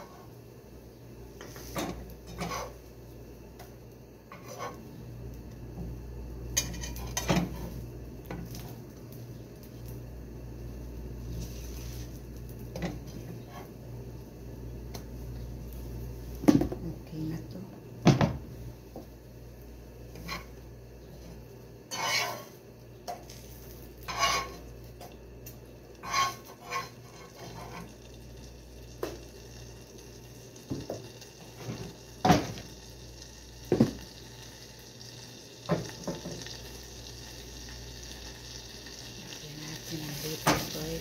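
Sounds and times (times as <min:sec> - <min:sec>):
metal spoon scraping a pan: 0:01.4 - 0:02.8, 0:04.3 - 0:04.8, 0:06.6 - 0:07.7, 0:20.1 - 0:20.6, 0:21.9 - 0:23.4, 0:24.0 - 0:24.6, 0:26.0 - 0:27.9.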